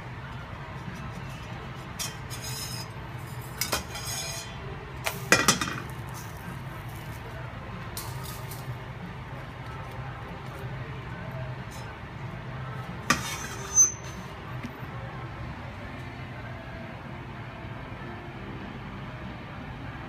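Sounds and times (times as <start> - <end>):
steady low hum: 0.0 - 20.0
metal turner scraping iron pan: 0.6 - 7.2, 11.6 - 12.0, 13.0 - 14.4.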